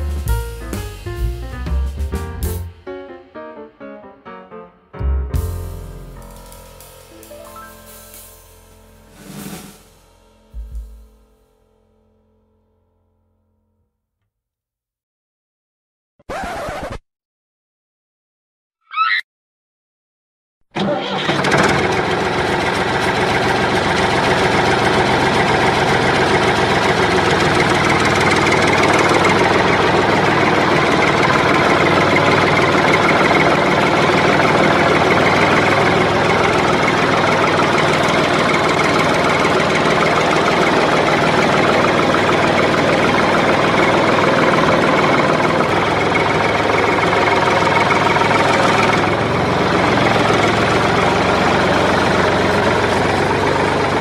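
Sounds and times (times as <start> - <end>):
toy tractor engine sound: 20.8 - 54.0.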